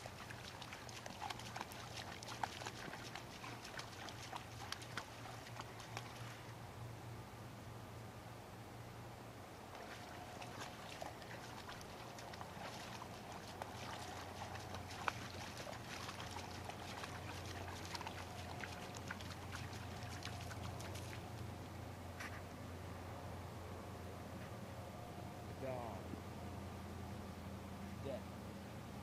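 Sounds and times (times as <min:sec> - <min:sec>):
dog wading through water: 0:00.0 - 0:06.5, 0:09.7 - 0:21.6
low steady hum: 0:00.0 - 0:29.0.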